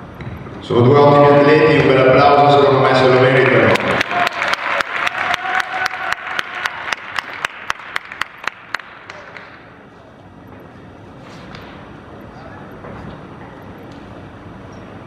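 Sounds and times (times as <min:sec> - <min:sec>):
audience applauding: 0:03.3 - 0:09.5.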